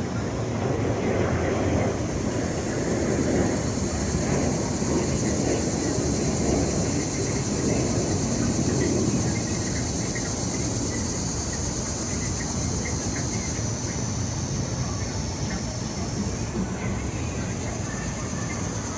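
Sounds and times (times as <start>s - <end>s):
low rumble of street traffic: 0.0s - 18.9s.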